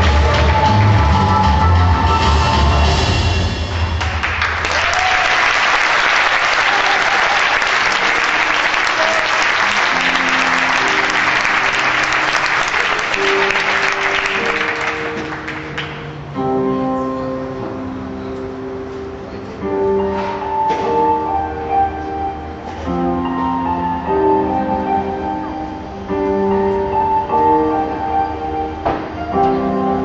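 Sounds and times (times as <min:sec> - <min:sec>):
loud drum-driven music: 0:00.0 - 0:04.0
audience applauding: 0:03.7 - 0:16.2
soft instrumental music: 0:07.8 - 0:30.0.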